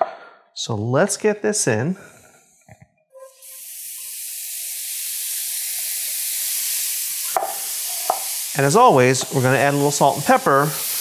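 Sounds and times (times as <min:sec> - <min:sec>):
mushrooms sizzling in skillet: 0:03.3 - 0:11.0.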